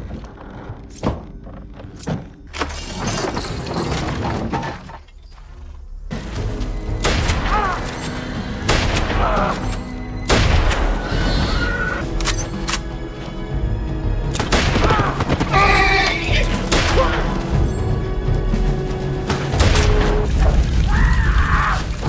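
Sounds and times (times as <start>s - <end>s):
dramatic music score: 0.0s - 22.0s
gunshots from a long gun: 14.3s - 16.0s.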